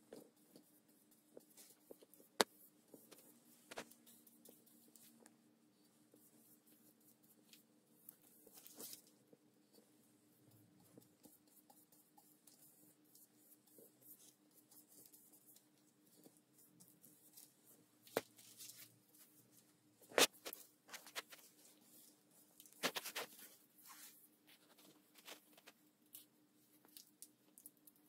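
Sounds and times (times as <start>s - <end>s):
faint steady hum: 0.0s - 28.0s
bristles rustling: 6.6s - 9.2s, 13.7s - 25.8s.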